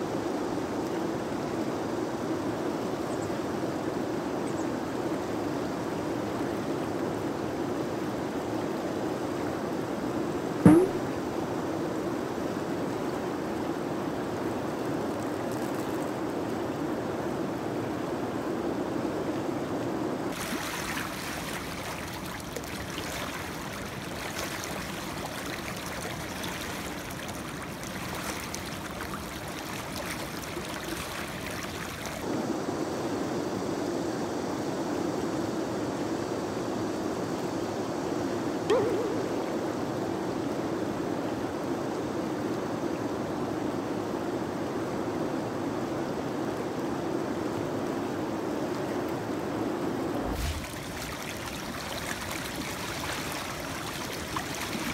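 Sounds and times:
short sharp sound: 10.6s - 11.1s
water rushing over rapids: 20.3s - 32.3s, 48.0s - 54.9s.

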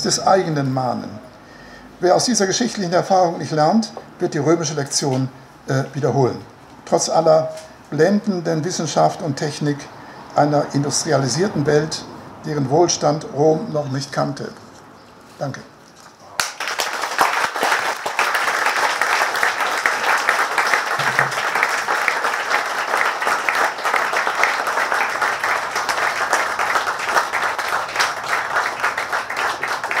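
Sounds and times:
audience applauding: 16.4s - 30.0s.

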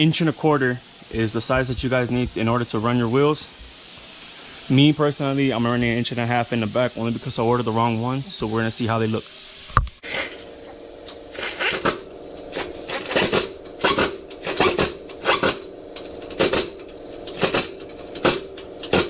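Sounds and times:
pneumatic wrench bursts: 10.0s - 19.0s.

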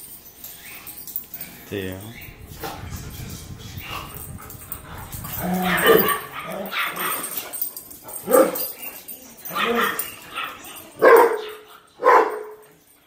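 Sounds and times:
dog barking and yipping: 3.8s - 12.7s.

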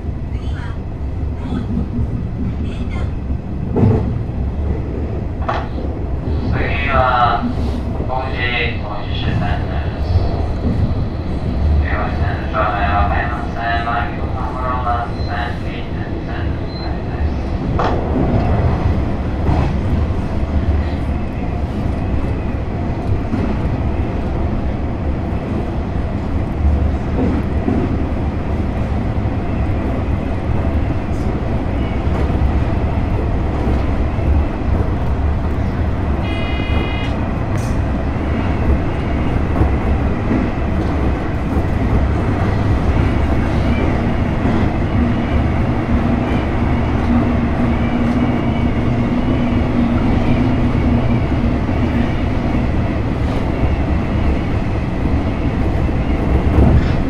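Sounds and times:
train wheels rumbling: 0.0s - 57.0s.

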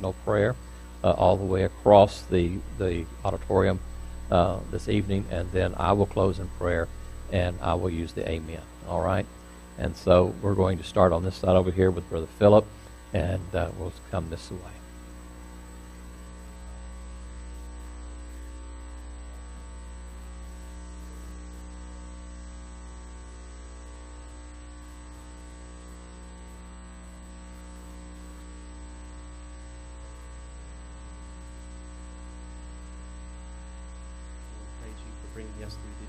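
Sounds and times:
electrical mains hum: 0.0s - 36.0s
faint high whine: 0.0s - 36.0s.

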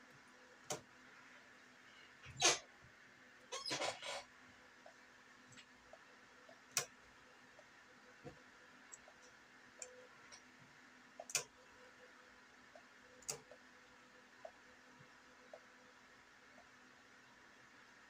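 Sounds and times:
computer mouse clicking: 11.2s - 11.6s, 12.8s - 13.6s.

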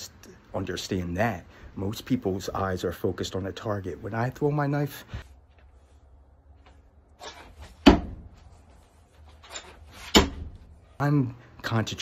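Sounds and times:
knife hitting target: 7.8s - 8.3s.

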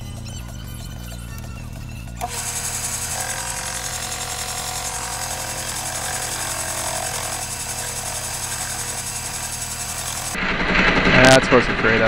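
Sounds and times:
metal lathe running: 2.2s - 10.4s.

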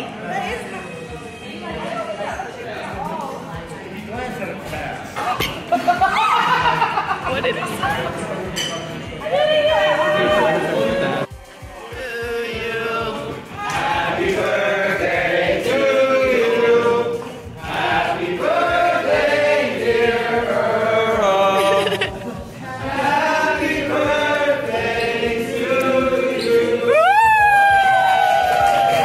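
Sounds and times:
people singing in unison: 10.2s - 27.3s.

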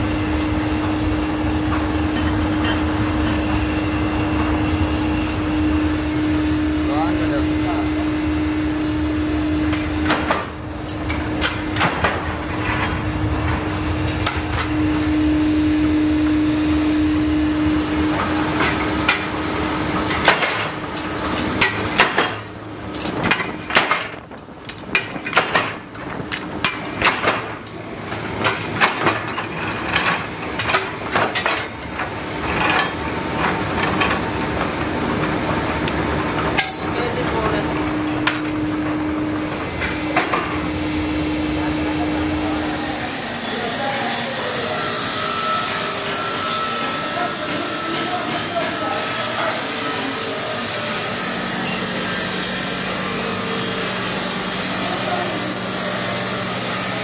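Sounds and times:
machine hum: 0.0s - 57.0s
metallic clanks and knocks: 20.1s - 27.8s.

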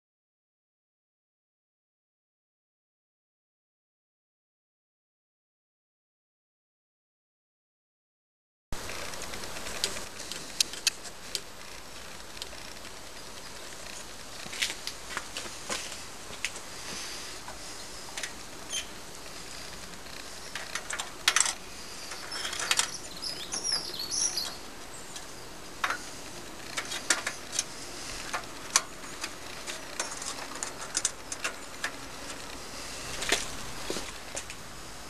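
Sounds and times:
high chirps: 21.8s - 25.5s.

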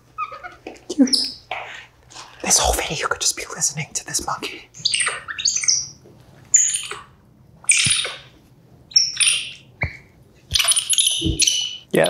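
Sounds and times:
monkey squeaky calls: 0.2s - 1.4s, 4.8s - 11.9s.

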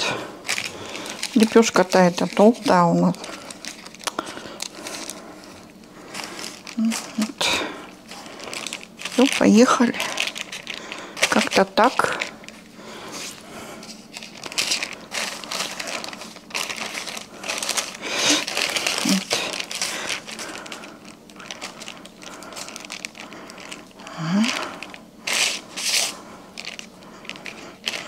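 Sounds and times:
baking paper rustling and crinkling: 0.0s - 28.0s.

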